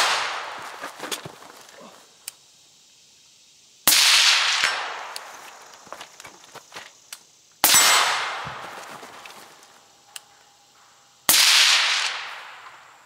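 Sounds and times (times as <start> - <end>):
suppressed rifle shots with echo: 7.6 - 8.4.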